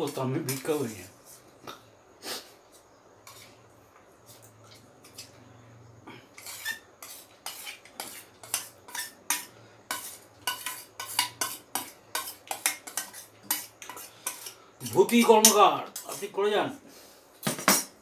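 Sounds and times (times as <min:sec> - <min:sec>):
spoon scraping and clinking on plate: 0:03.2 - 0:03.6, 0:06.3 - 0:16.4.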